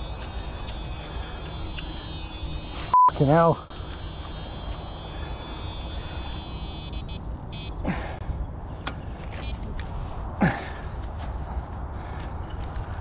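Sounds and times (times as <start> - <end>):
fishing reel whining: 0.0 - 2.9, 3.6 - 7.7.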